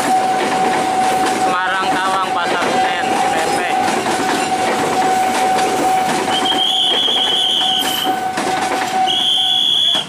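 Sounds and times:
train wheels clattering over rail joints: 0:00.0 - 0:10.0.

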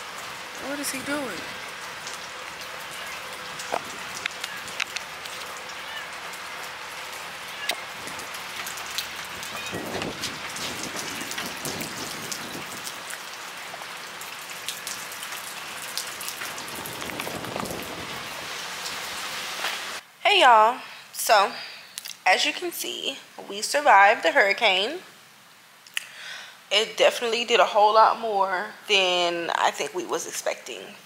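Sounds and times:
raindrops striking surfaces: 0:00.0 - 0:20.0, 0:21.3 - 0:24.7
steady rain: 0:00.0 - 0:30.8.

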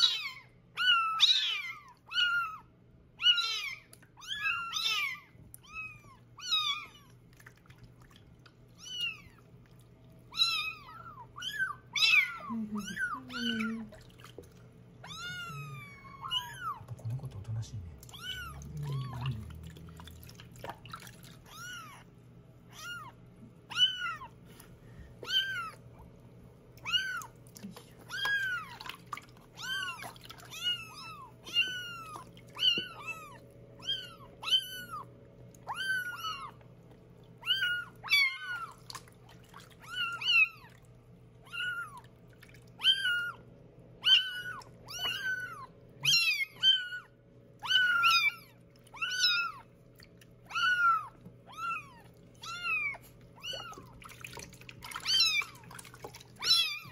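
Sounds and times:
kittens meowing: 0:00.0 - 0:07.2, 0:08.8 - 0:09.5, 0:10.3 - 0:13.9, 0:15.0 - 0:17.0, 0:18.1 - 0:19.6, 0:21.4 - 0:22.1, 0:22.7 - 0:24.5, 0:25.2 - 0:25.9, 0:26.8 - 0:27.4, 0:28.0 - 0:36.6, 0:37.3 - 0:39.0, 0:39.6 - 0:40.8, 0:41.4 - 0:42.1, 0:42.7 - 0:49.7, 0:50.4 - 0:56.9.

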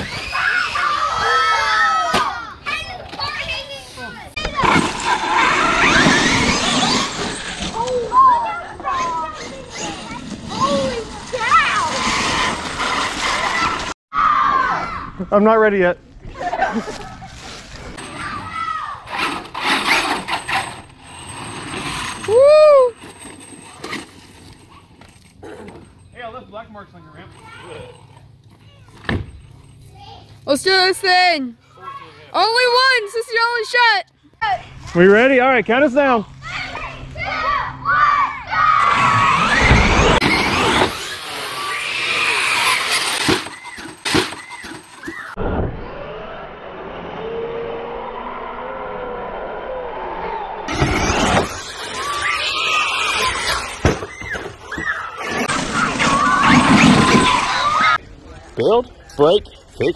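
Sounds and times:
children shouting: 0:00.0 - 0:03.6, 0:07.8 - 0:15.2, 0:36.4 - 0:45.4, 0:47.1 - 0:58.0
rc truck motor whine: 0:05.0 - 0:08.0, 0:38.8 - 0:44.9, 0:45.8 - 0:55.5
tyres rushing: 0:36.5 - 0:45.4, 0:50.7 - 0:58.0.

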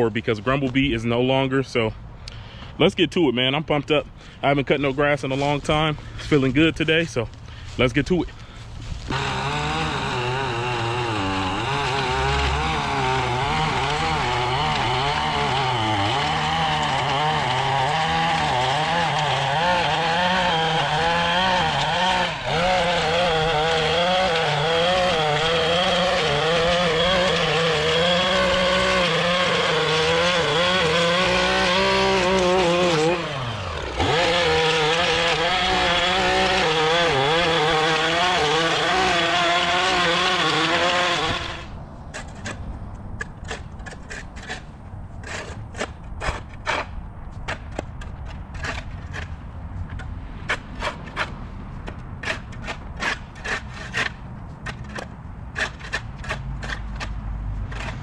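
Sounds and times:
lawn mower engine running: 0:21.8 - 0:41.7.

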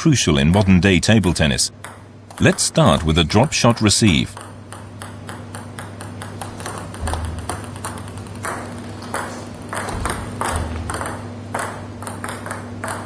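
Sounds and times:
low steady hum: 0:00.0 - 0:13.0
table tennis ball ticking: 0:00.3 - 0:13.0.

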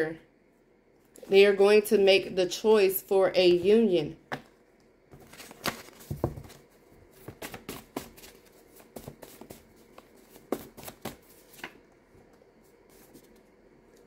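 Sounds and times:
cards flicking and tapping: 0:07.2 - 0:11.8.

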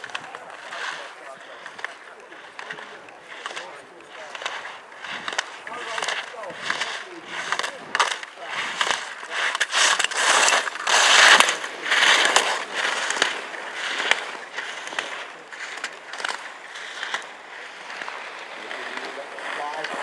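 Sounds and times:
skis scraping on snow: 0:00.0 - 0:20.0.

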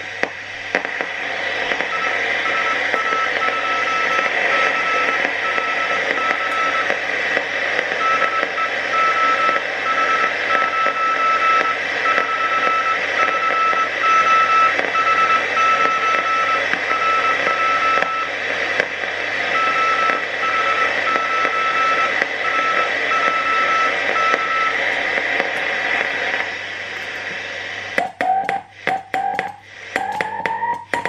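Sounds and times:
receiver hiss: 0:00.0 - 0:31.0
morse code tone: 0:01.9 - 0:07.0, 0:08.0 - 0:18.4, 0:19.5 - 0:24.8.

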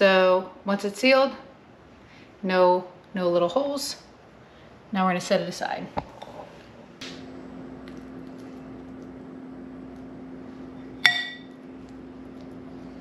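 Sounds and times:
appliance humming: 0:06.0 - 0:13.0
spoon clinking against glass bowl: 0:11.0 - 0:11.6.

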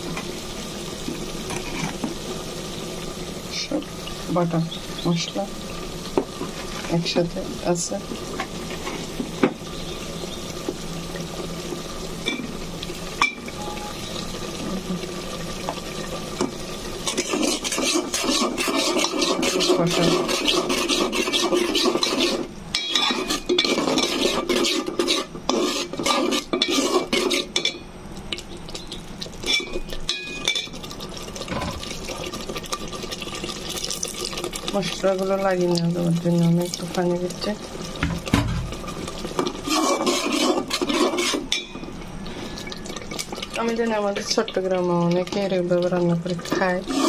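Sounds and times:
food sizzling in pot: 0:00.0 - 0:47.0
spoon scraping metal pot: 0:17.0 - 0:27.8, 0:39.4 - 0:41.8, 0:46.4 - 0:47.0.

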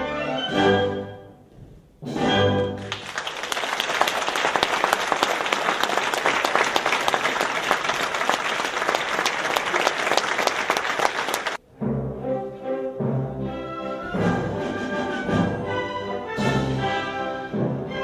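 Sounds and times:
orchestral music: 0:00.0 - 0:03.0, 0:11.6 - 0:18.0
audience applauding: 0:02.8 - 0:11.6.

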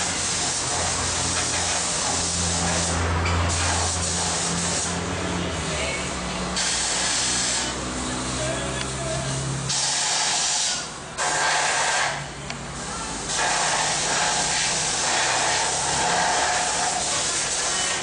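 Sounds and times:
paint spray gun hissing: 0:06.6 - 0:07.8, 0:09.7 - 0:12.2, 0:13.2 - 0:18.0.

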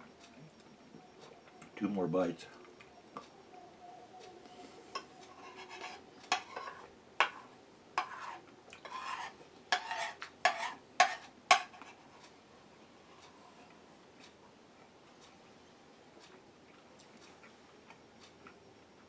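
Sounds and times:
cutlery clinking on a plate: 0:05.0 - 0:11.9.

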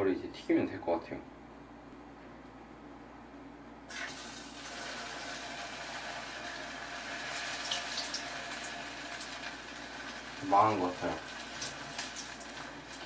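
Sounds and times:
food sizzling in hot oil: 0:03.9 - 0:13.0.

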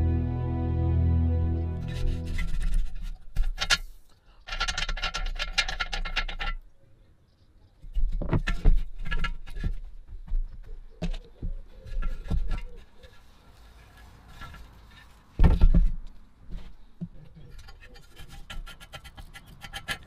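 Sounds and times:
rapid clicking and scraping: 0:02.3 - 0:06.6, 0:17.4 - 0:20.0.

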